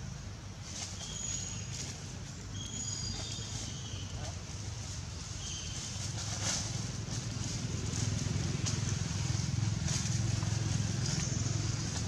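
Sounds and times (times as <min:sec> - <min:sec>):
dry leaves rustling: 0:00.6 - 0:12.0
motor rumbling: 0:05.2 - 0:12.0.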